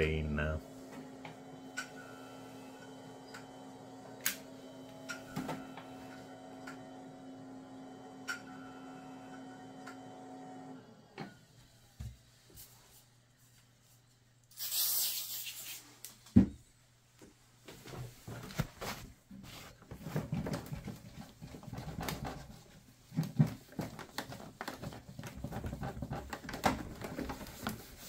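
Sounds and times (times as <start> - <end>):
computer fan hum: 0.0 - 11.0
short burst of hiss: 14.5 - 15.8.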